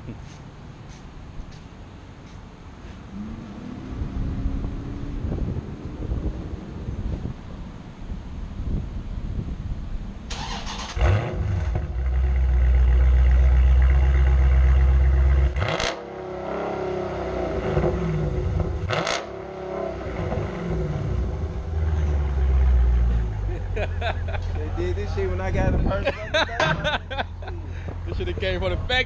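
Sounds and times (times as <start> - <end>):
engine revving: 3.1 - 7.3, 10.3 - 24.4
car engine starting: 9.8 - 25.5.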